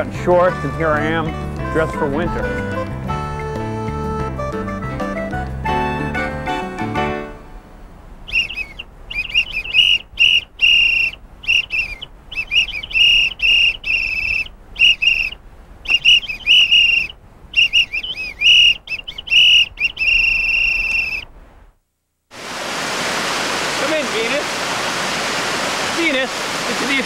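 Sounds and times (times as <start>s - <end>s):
high whistled notes: 8.3s - 21.3s.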